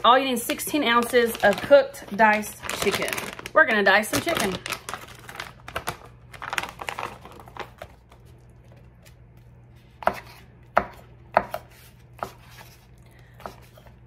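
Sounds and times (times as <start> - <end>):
plastic pouch crinkling: 0.8 - 9.0.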